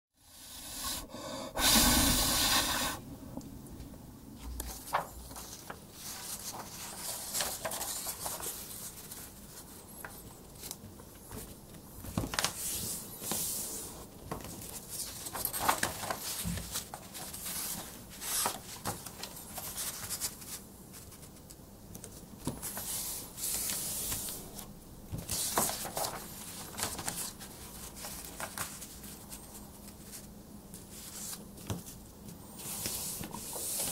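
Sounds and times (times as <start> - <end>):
paper rustling and folding: 4.4 - 33.9.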